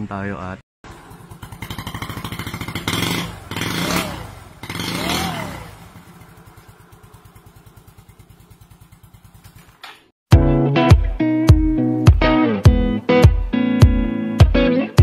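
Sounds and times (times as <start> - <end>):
motorcycle engine idling: 0.8 - 10.1
motorcycle engine revving: 0.8 - 10.1.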